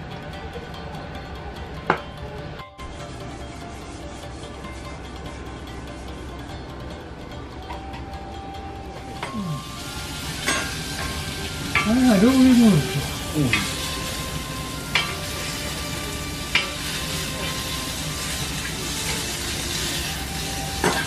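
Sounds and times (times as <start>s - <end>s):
meat sizzling on a griddle: 9.1s - 21.0s
person's voice: 11.8s - 13.7s.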